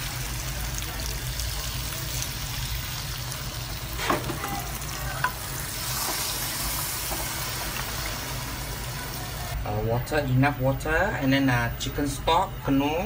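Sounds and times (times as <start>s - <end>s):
curry sizzling in a pot: 0.0s - 9.6s.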